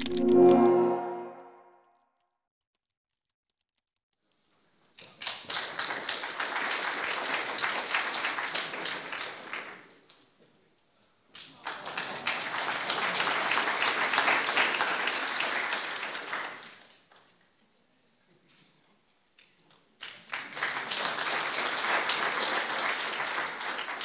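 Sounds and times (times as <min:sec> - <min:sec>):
audience applauding: 0:05.0 - 0:10.0, 0:11.4 - 0:16.9, 0:20.0 - 0:24.0.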